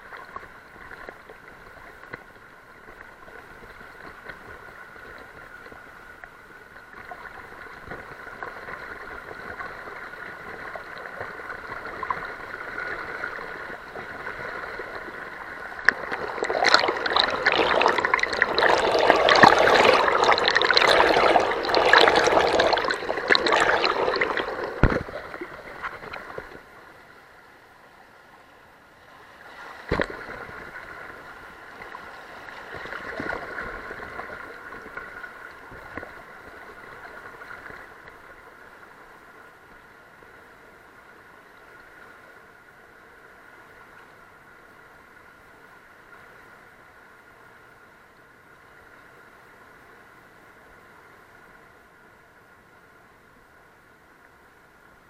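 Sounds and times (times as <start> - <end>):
water splashing through rapid: 8.4 - 26.7, 29.5 - 31.2
river water rushing: 11.4 - 26.8.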